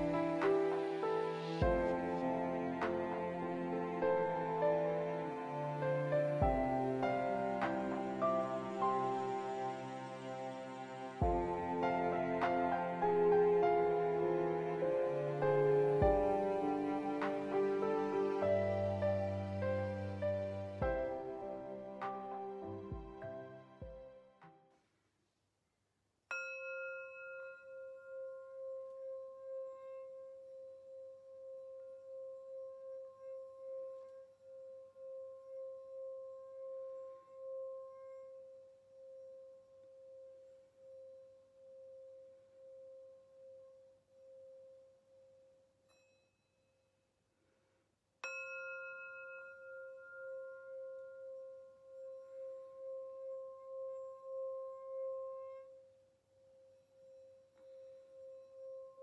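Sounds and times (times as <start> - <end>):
singing bowl ringing: 26.3 - 46.6, 48.2 - 59.0.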